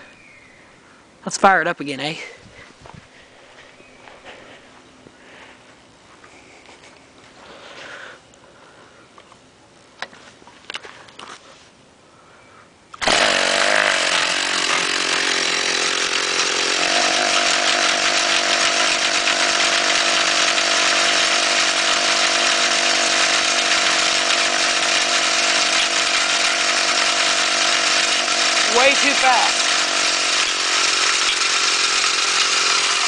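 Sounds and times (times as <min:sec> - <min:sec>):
two-stroke engine running fast: 0:13.0 - 0:33.0.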